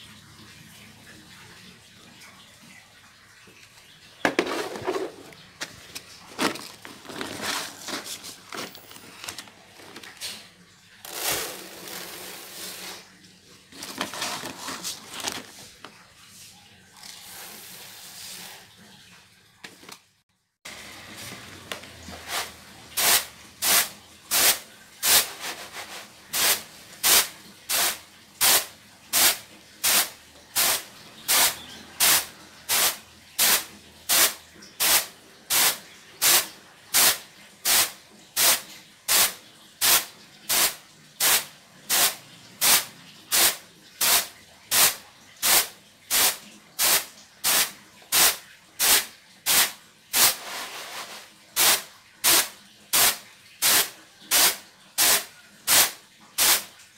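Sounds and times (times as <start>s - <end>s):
rice swishing on winnowing tray: 22.2s - 28.6s, 43.4s - 56.6s.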